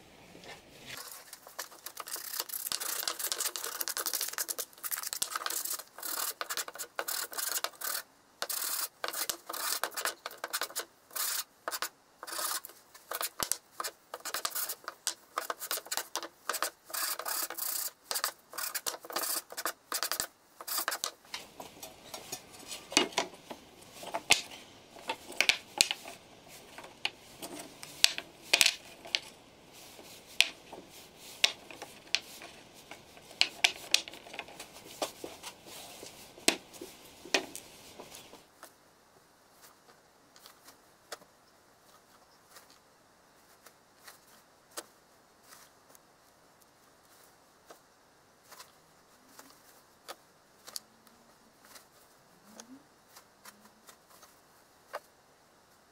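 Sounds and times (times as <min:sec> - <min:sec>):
wooden block rubbing on sandpaper: 0:00.4 - 0:38.5
wooden blocks clacking: 0:01.5 - 0:10.8, 0:18.1 - 0:38.4.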